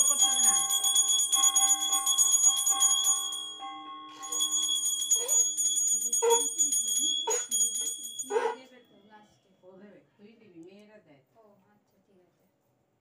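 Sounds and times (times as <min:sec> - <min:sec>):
hand bell rung rapidly: 0:00.0 - 0:08.6.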